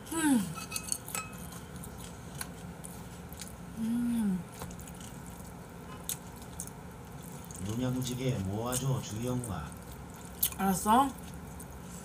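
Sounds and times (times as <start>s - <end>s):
person humming mmm: 0.0s - 0.6s, 3.8s - 4.5s
utensils clicking against dishes: 0.5s - 1.5s.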